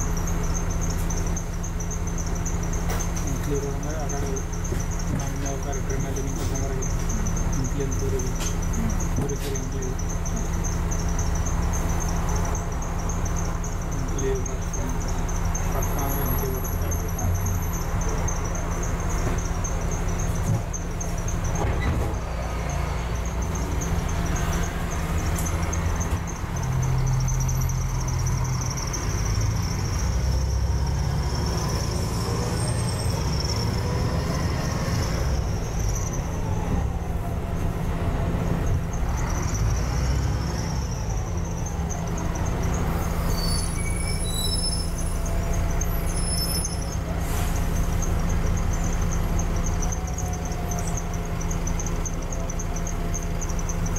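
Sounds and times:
bus engine accelerating with whine: 0:00.0 - 0:53.9
brief high squeals: 0:42.8 - 0:48.2.

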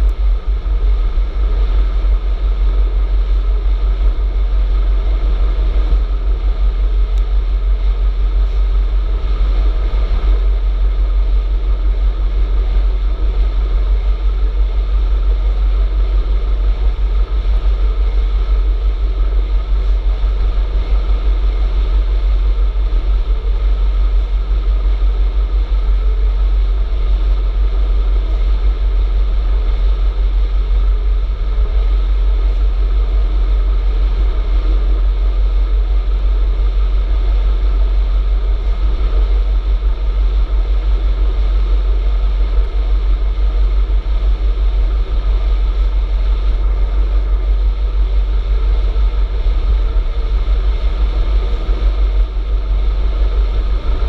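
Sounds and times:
road noise hiss: 0:00.0 - 0:54.0
wind rumble on microphone: 0:00.0 - 0:54.0.

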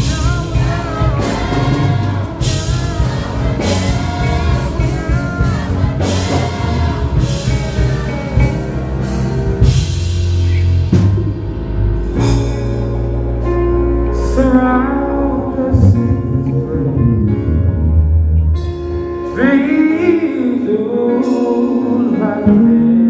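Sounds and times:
man singing into a microphone: 0:00.0 - 0:08.6, 0:14.2 - 0:17.6, 0:19.3 - 0:23.0
choir singing: 0:00.0 - 0:10.6
drum and cymbal hits: 0:00.0 - 0:13.2
heavy bass: 0:00.0 - 0:22.9
keyboard: 0:00.0 - 0:23.0.

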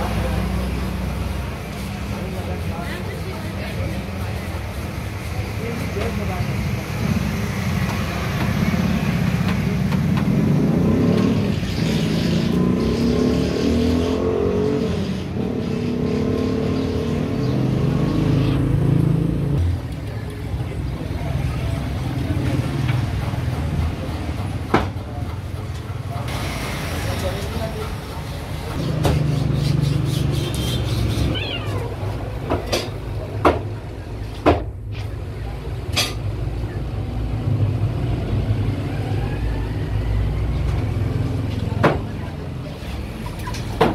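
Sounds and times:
cat meowing: 0:31.3 - 0:32.2.

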